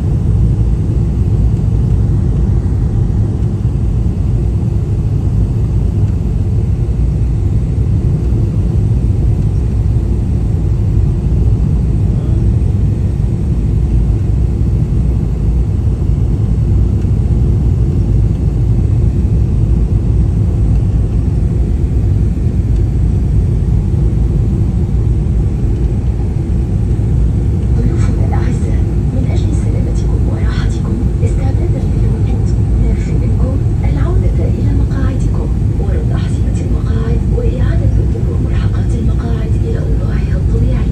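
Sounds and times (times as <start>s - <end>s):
airliner cabin engine rumble: 0.0s - 40.9s.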